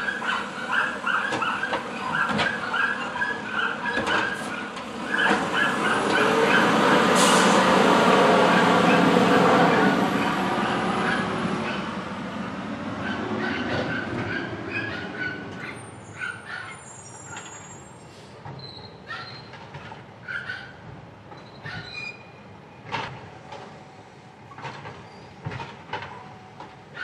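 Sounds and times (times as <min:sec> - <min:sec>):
garbage truck diesel engine: 0:00.0 - 0:20.0.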